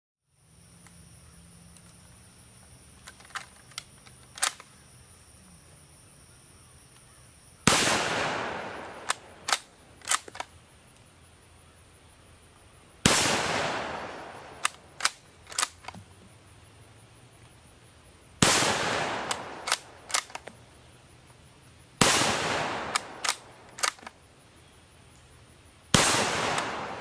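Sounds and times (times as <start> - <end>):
rifle bolt clicks: 3.0 - 4.7, 9.0 - 10.5, 14.6 - 16.0, 19.2 - 20.6, 22.9 - 24.2
rifle shots with echo: 7.7 - 10.4, 13.0 - 15.8, 18.4 - 20.4, 22.0 - 24.0, 25.9 - 27.0.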